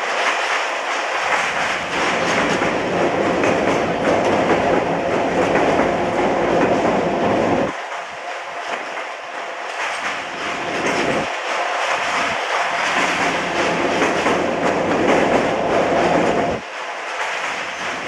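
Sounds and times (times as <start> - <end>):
train wheels clattering: 0.0 - 18.0.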